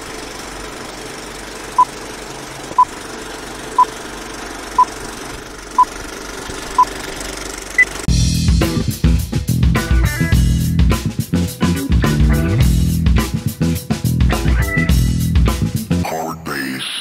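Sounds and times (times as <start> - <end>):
film projector whirring: 0.0 - 8.1.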